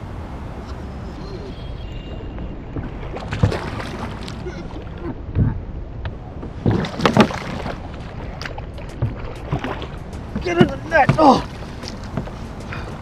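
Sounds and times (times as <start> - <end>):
steady low rumble: 0.0 - 13.0
fish thrashing and splashing: 2.8 - 5.1, 6.5 - 12.0.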